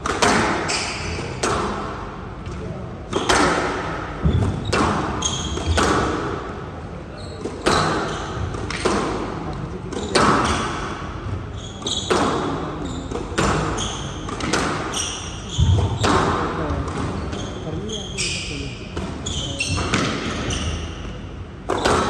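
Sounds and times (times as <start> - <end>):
squash ball hits echoing: 0.0 - 17.6, 18.8 - 22.0
shoes squeaking on court floor: 0.6 - 1.4, 4.2 - 6.2, 7.1 - 8.9, 11.4 - 22.0.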